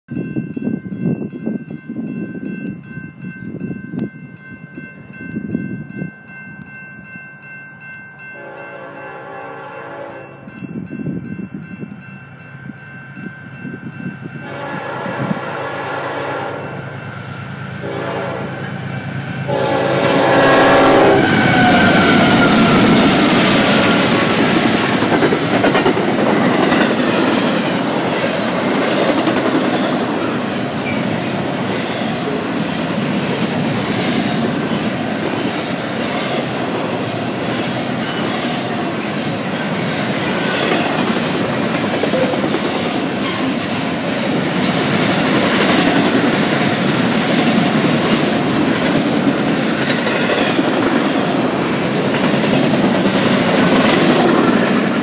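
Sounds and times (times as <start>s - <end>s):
freight train passing: 0.1s - 55.0s
locomotive air horn blasts: 8.4s - 10.4s, 14.4s - 16.8s, 17.8s - 18.7s, 19.4s - 22.7s
train wheels clicking over rail joints: 21.3s - 37.5s.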